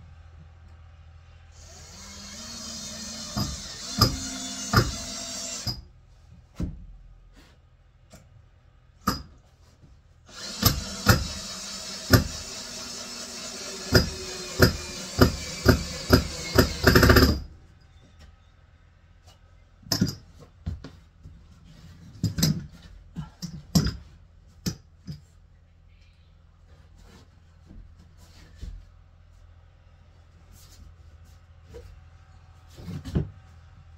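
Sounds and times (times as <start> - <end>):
cordless drill driving screw: 1.6 - 5.8, 10.3 - 17.4.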